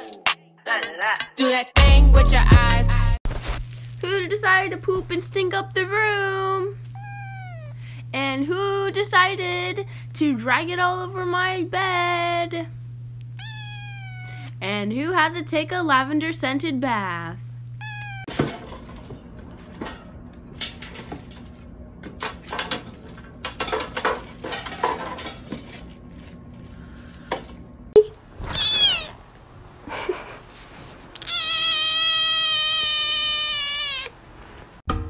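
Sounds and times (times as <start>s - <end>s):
kitten meowing: 6.9s - 7.8s, 13.4s - 14.5s, 17.8s - 18.3s, 28.4s - 29.2s, 31.2s - 34.2s.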